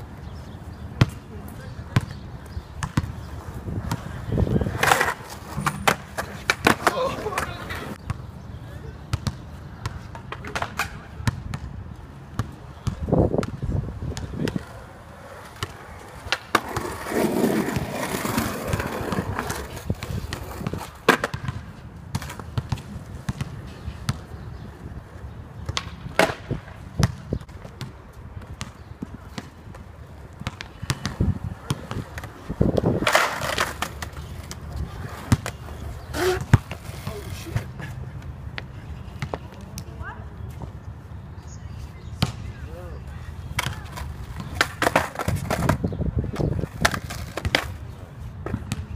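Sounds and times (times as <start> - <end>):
skateboard wheels rolling: 2.4 - 8.0, 13.1 - 39.4, 43.5 - 48.9
skateboard clacking on ground: 3.9 - 8.0, 10.2 - 11.0, 14.3 - 21.5, 25.7 - 26.5, 30.5 - 38.0, 43.5 - 48.6.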